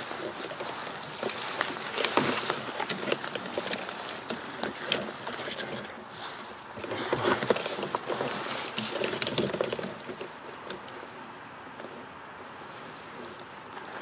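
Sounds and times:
dry leaves rustling and crackling: 0.0 - 10.7.

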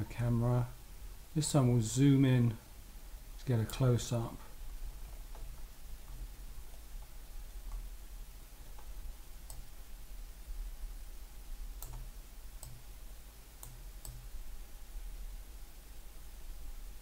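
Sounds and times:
faint low hum: 0.0 - 17.0
computer mouse clicks: 8.7 - 9.8, 11.8 - 12.8, 13.6 - 14.3.

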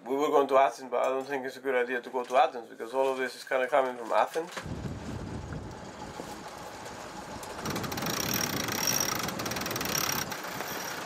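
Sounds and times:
wind: 3.8 - 11.0
water noise: 4.7 - 11.0
winch pawls clicking: 6.8 - 11.0.

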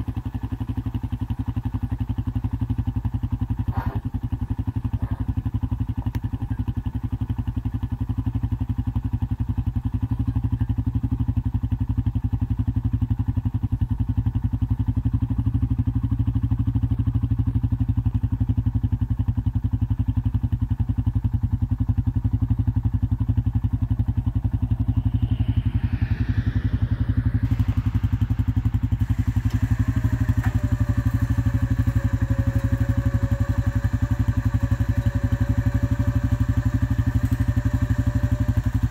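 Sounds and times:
atv engine idling: 0.0 - 25.6, 27.4 - 38.9
steady machine whine: 23.3 - 38.9.

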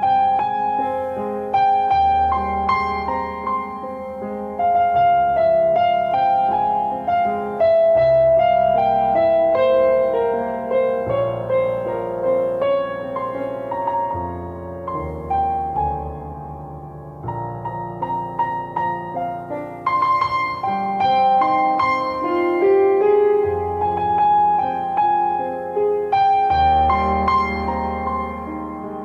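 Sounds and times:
digital piano melody: 0.0 - 29.0.

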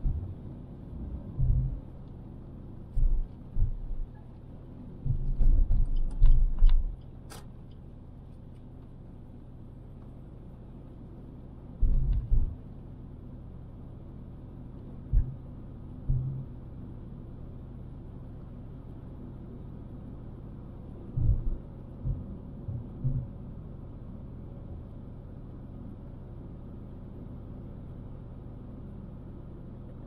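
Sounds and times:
loud low thumps and bumps: 0.0 - 0.4, 1.0 - 2.0, 2.9 - 4.2, 11.8 - 12.6, 15.1 - 15.4, 16.0 - 16.5, 21.2 - 23.4
road rumble inside car: 0.0 - 30.0.

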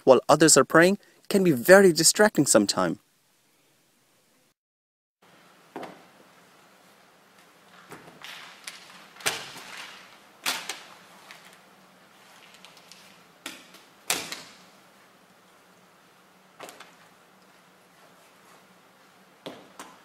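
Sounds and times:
rustle of handling: 6.8 - 13.3.

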